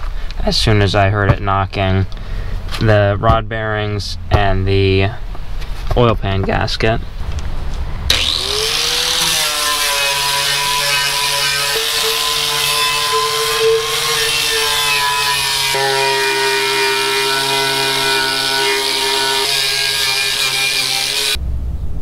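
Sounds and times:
angle grinder grinding metal: 8.1 - 21.4.

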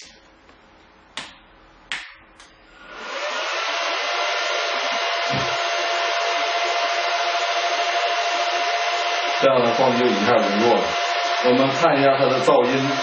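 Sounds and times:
cooling fans rushing: 2.7 - 13.0.

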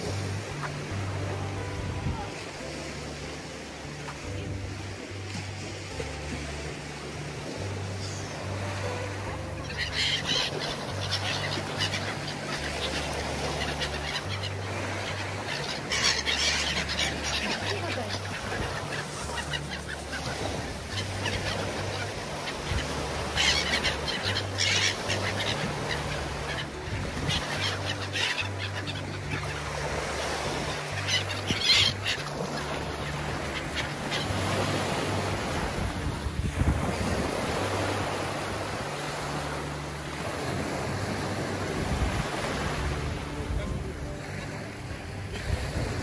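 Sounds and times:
gulls calling: 0.0 - 46.0
sea waves washing: 0.0 - 46.0.

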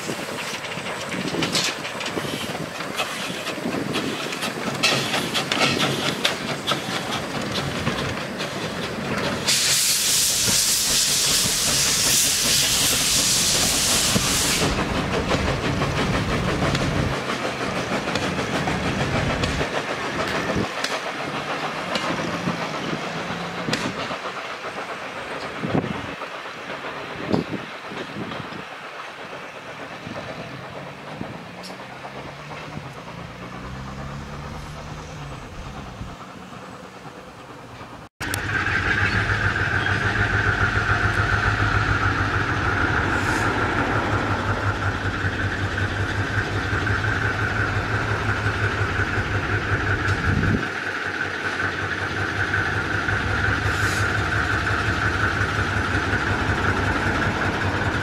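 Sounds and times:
locomotive engine throbbing: 0.0 - 58.0
train carriages rolling past: 0.0 - 58.0.

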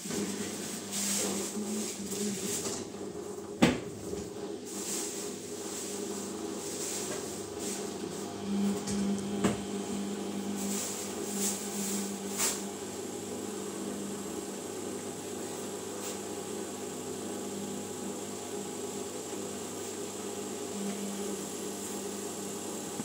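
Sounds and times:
washing machine motor hum: 0.0 - 23.0.

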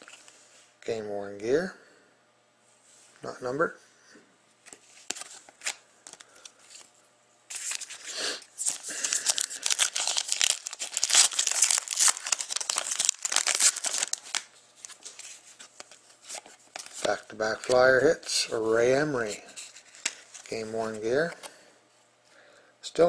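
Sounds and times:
wrapper tearing and crinkling: 7.5 - 17.8.

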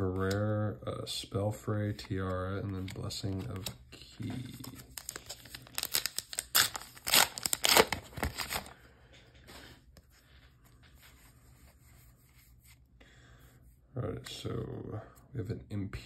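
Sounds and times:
cards rustling: 1.8 - 8.8
foil wrapper tearing and crinkling: 4.5 - 8.7.

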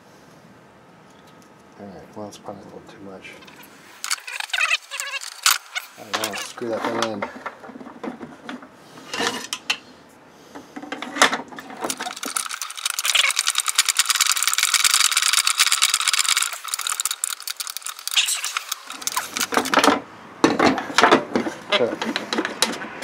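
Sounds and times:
screwdriver rapid clicking: 4.0 - 6.5, 11.8 - 19.8.

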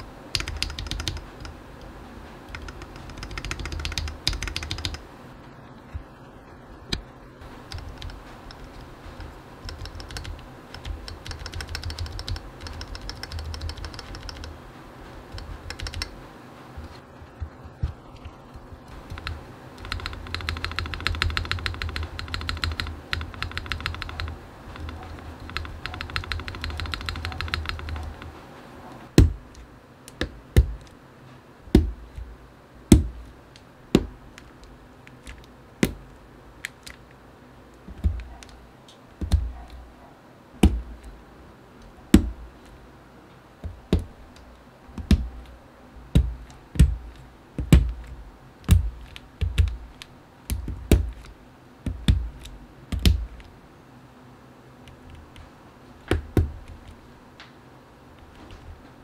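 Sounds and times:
rapid keyboard typing: 0.0 - 5.1, 6.9 - 16.2, 16.8 - 31.0, 37.8 - 39.9, 43.6 - 53.5.

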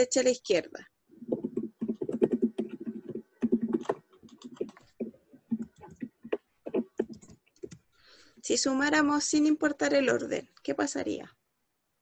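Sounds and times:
computer keyboard typing: 1.3 - 7.9.

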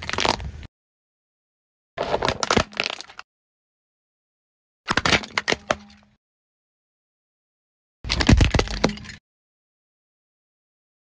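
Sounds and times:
plastic toys cracking: 2.0 - 3.3, 4.9 - 6.1, 8.1 - 9.2.

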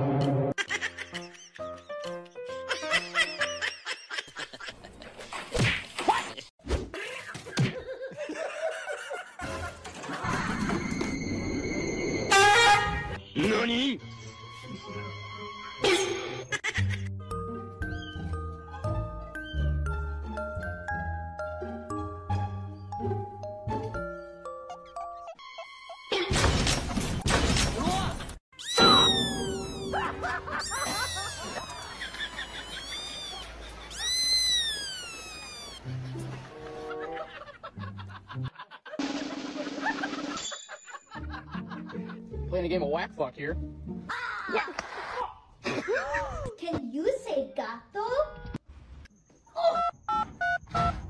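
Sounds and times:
music: 0.0 - 3.6, 12.4 - 26.1, 35.8 - 40.4, 41.1 - 44.4
comedy cry sliding down: 28.6 - 35.9.

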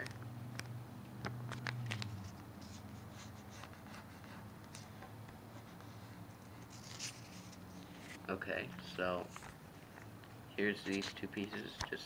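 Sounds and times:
paper being folded and creased: 6.6 - 8.2.

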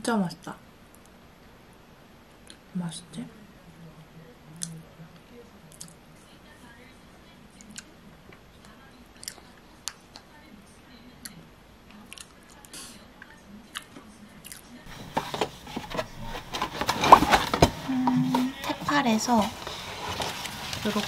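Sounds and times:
soft chewing: 4.6 - 6.0, 7.5 - 10.4, 11.1 - 16.6
fork scraping plastic cup: 14.9 - 21.0
rustling and clatter of box: 14.9 - 21.0.

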